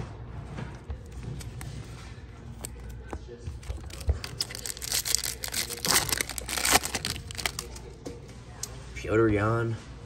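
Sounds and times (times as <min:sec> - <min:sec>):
foil wrapper crinkling and tearing: 0:03.7 - 0:07.9.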